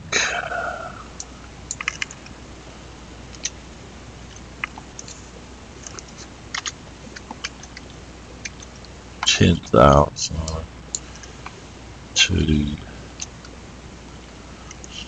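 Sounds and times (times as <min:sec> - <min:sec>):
faint low hum: 0:00.0 - 0:15.0
keyboard keys clicking: 0:01.7 - 0:02.3.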